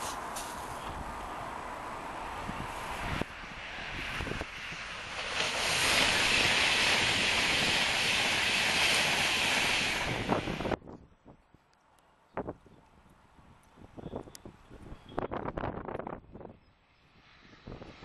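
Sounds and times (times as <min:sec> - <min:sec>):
train passing at speed: 0:00.0 - 0:10.8, 0:15.0 - 0:18.0
wind buffeting microphone: 0:02.2 - 0:11.5, 0:12.3 - 0:18.0.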